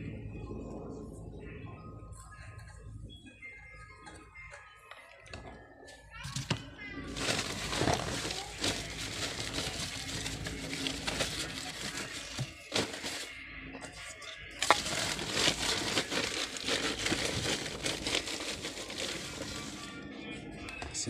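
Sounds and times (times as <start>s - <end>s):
dry material rustling: 7.1s - 13.3s, 13.9s - 20.0s.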